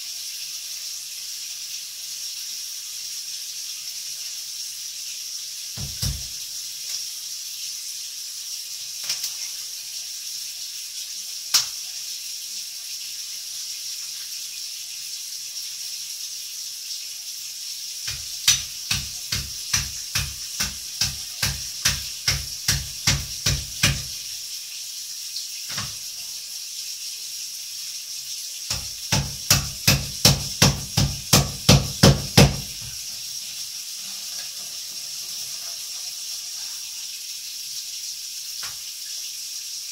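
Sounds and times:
knife chopping on cutting board: 18.1s - 24.2s, 28.7s - 32.8s.

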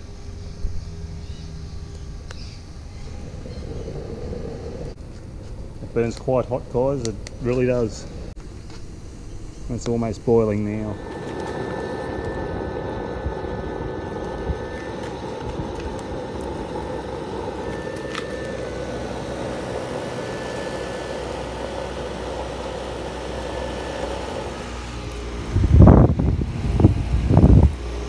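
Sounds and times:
fan whining: 0.0s - 28.0s
rushing fire noise: 3.1s - 8.4s, 10.0s - 28.0s.

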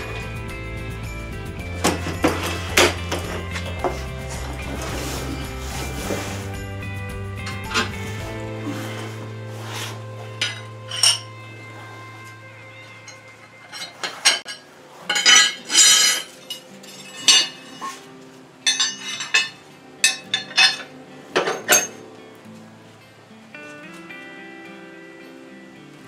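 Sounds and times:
metal tools clinking: 0.0s - 6.6s, 10.3s - 11.4s, 12.2s - 22.0s
metal scraping on concrete: 0.0s - 22.0s.

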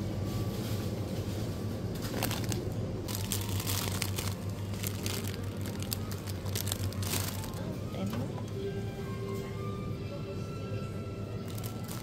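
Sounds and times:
plastic bag crinkling: 2.0s - 7.8s, 11.5s - 12.0s.

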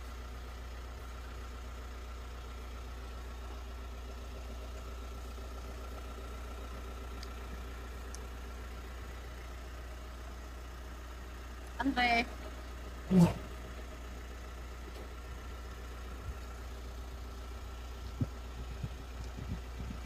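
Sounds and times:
vehicle engine idling: 0.0s - 20.0s.

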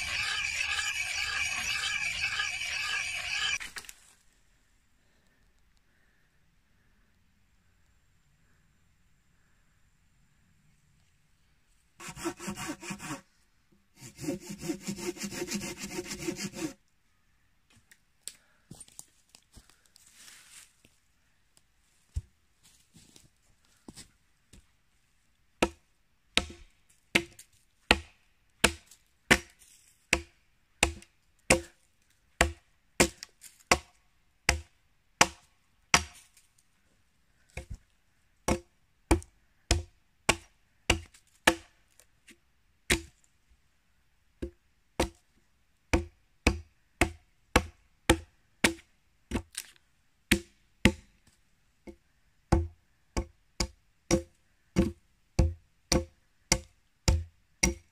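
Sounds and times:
axe chopping log: 26.4s - 29.5s, 30.1s - 31.7s, 32.4s - 33.9s, 34.5s - 36.2s, 38.5s - 41.7s, 42.9s - 43.1s, 46.0s - 49.5s, 50.3s - 51.1s, 52.5s - 57.9s.

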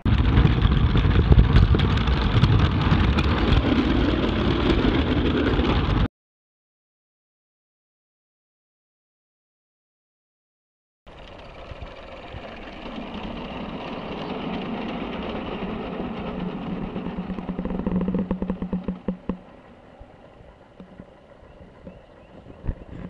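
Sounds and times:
model train rumbling: 0.1s - 6.1s, 11.1s - 23.0s.

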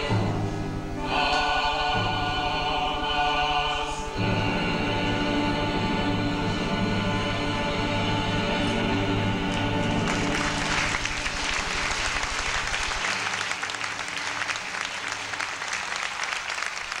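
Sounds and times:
stage music: 0.0s - 17.0s
audience applauding: 9.8s - 17.0s.

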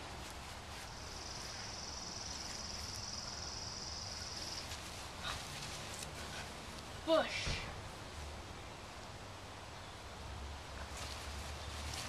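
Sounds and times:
faint outdoor background noise: 0.0s - 12.0s.

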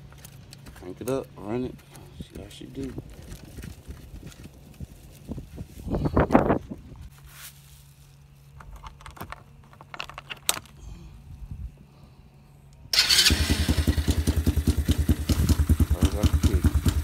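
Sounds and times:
engine starting and running: 12.9s - 17.0s.

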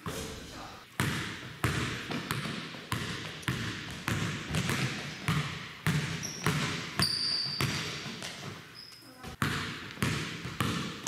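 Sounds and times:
basketball bouncing on wooden floor: 1.0s - 11.0s
sneaker squeaks on wood: 6.2s - 9.4s.

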